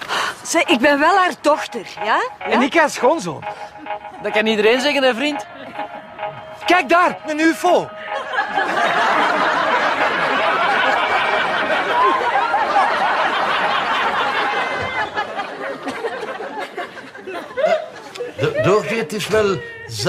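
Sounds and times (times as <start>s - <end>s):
studio audience laughing: 7.9s - 19.0s.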